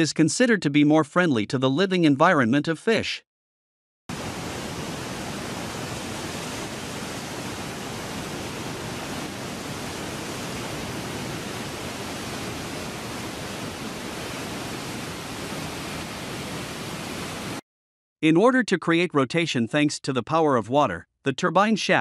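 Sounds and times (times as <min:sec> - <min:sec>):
steady broadband rushing noise: 0:04.1 - 0:17.6.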